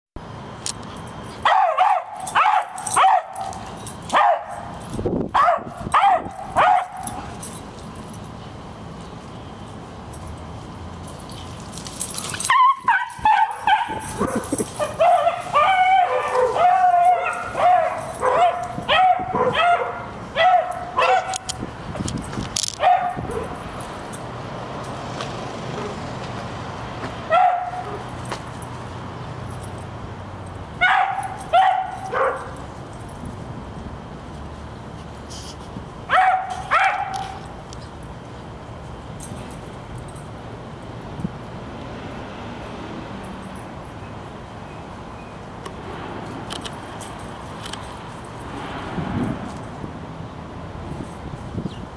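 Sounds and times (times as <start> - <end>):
dog barking and baying: 1.4 - 4.7, 5.3 - 7.3, 12.5 - 21.5, 22.8 - 23.6, 27.3 - 28.1, 30.8 - 32.6, 36.1 - 37.4.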